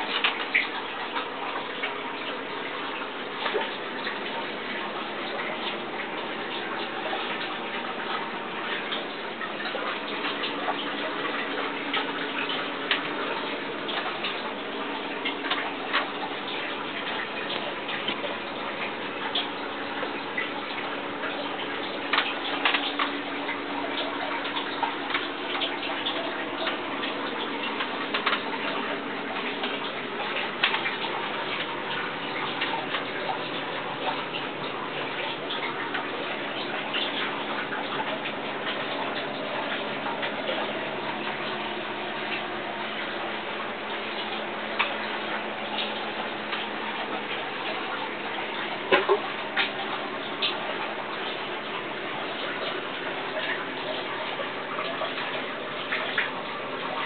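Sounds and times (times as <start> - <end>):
water trickling and dripping: 0.0 - 57.0.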